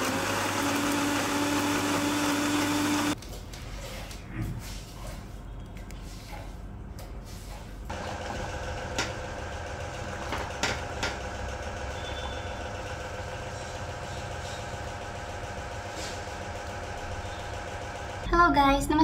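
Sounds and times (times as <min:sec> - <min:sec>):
steady machine hum: 0:07.9 - 0:18.4.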